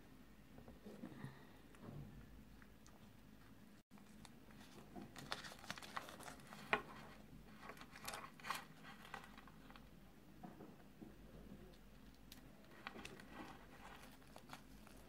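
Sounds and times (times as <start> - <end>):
plastic wrapper crinkling: 4.0 - 6.8, 7.6 - 9.8, 12.3 - 15.0.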